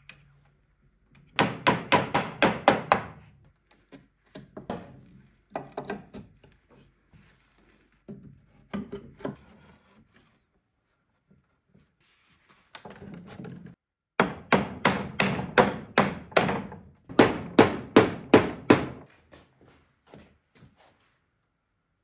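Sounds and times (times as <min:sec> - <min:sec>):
sharp knocks on wood: 0:14.2 - 0:19.0.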